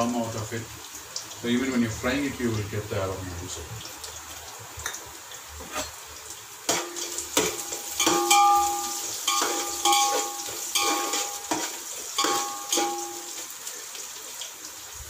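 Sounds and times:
onions sizzling in oil: 3.5 - 15.0
spoon knocking on ringing pot: 6.7 - 13.5
spoon stirring onions: 6.7 - 13.6.

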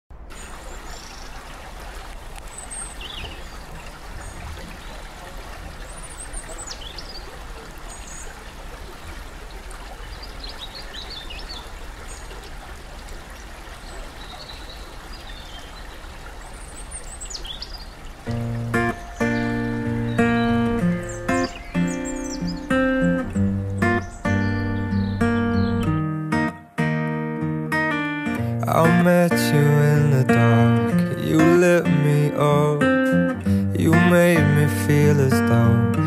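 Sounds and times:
stream running over stones: 0.1 - 25.6
birds chirping: 0.3 - 26.1.

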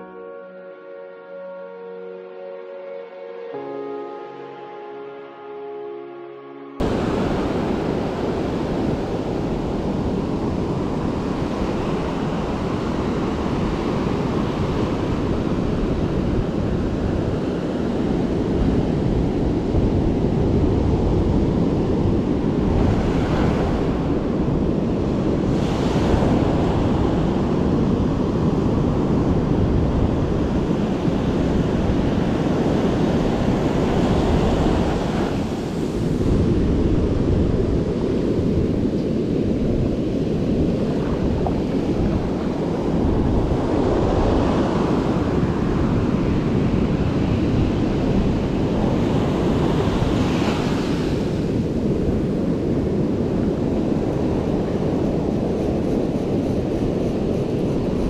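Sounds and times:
ocean surf breaking: 6.8 - 18.0, 30.5 - 55.3
wind buffeting microphone: 6.8 - 58.0.

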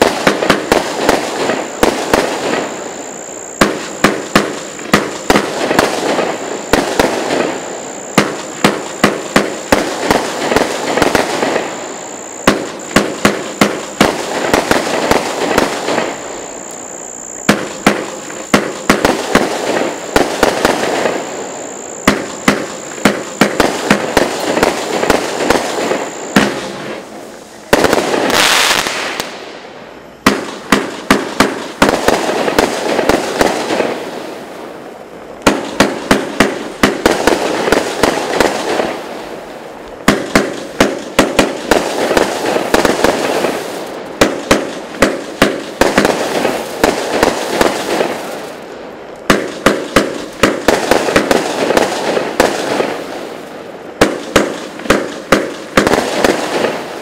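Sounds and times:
loud hissing rush: 0.0 - 49.1
firework crackling: 0.0 - 57.0
firework launch thumps and bursts: 12.4 - 16.2, 17.4 - 21.2, 22.0 - 27.1, 27.7 - 29.5, 30.2 - 34.1, 40.0 - 48.3, 49.2 - 53.0, 54.0 - 57.0.

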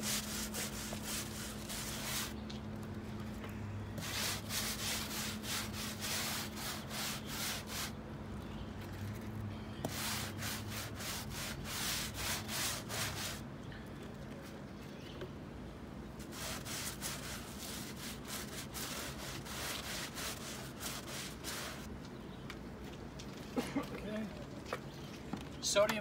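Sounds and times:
stiff brush scrubbing wood: 0.0 - 2.4, 4.0 - 8.0, 9.9 - 13.4, 16.2 - 21.9.

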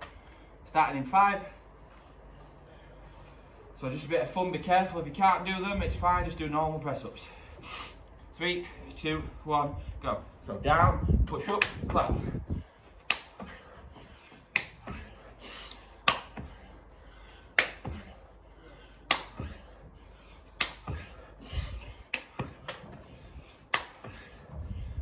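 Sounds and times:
sharp hand claps: 13.1 - 13.4, 14.5 - 14.8, 16.0 - 16.4, 17.6 - 17.9, 19.1 - 19.5, 20.6 - 21.0, 22.1 - 22.8, 23.7 - 24.2.

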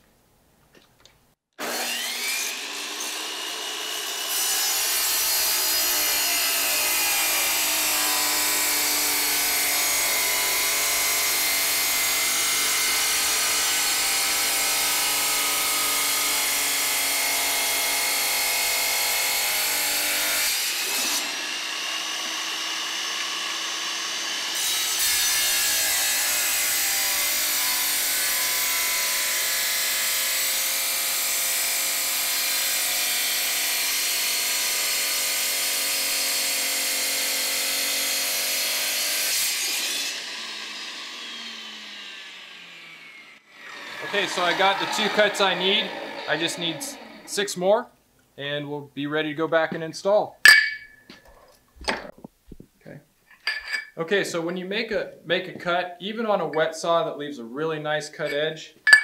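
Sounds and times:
tile saw cutting tile: 1.6 - 47.5.

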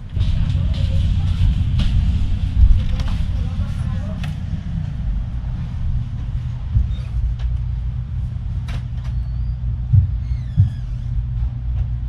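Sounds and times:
ferry machinery rumble: 0.0 - 12.0.

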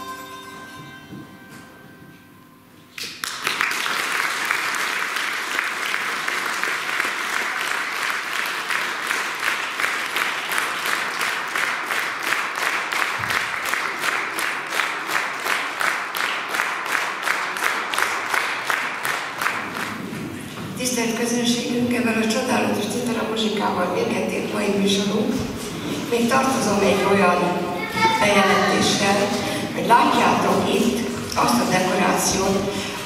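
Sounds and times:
rhythmic clapping in unison: 2.9 - 20.4
audience applause: 3.0 - 20.4.

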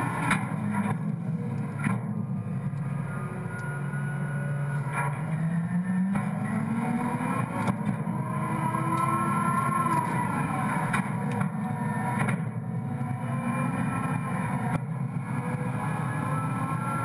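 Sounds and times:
high-pitched whine: 0.0 - 17.0.

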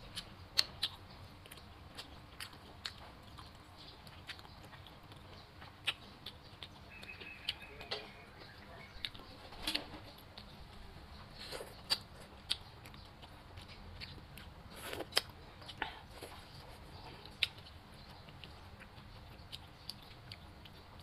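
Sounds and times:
chewing and lip smacks: 0.0 - 21.0.

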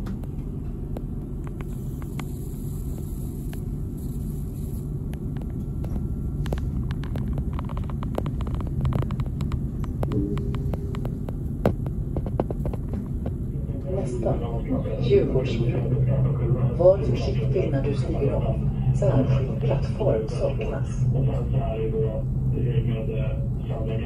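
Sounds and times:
tram rumbling on rails: 4.8 - 24.0.

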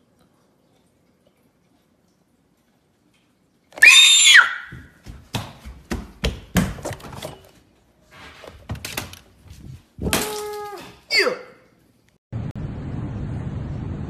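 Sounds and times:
high-pitched puppet voice scream: 3.8 - 4.7, 10.0 - 11.6
knocks and thumps: 4.7 - 7.5.

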